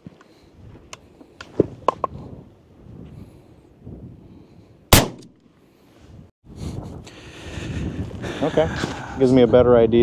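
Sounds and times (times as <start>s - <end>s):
shotgun shot: 4.9s - 5.3s.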